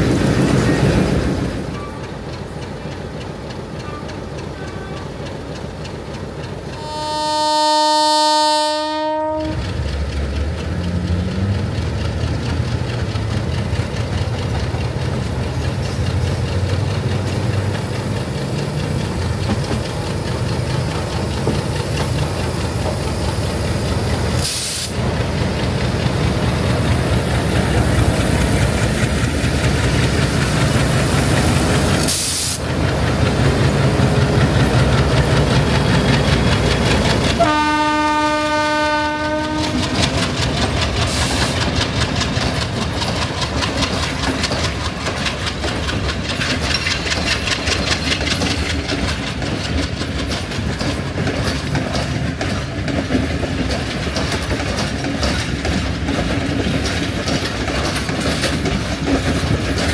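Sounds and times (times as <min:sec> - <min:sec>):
locomotive horn: 0:06.8 - 0:09.7, 0:37.4 - 0:39.9.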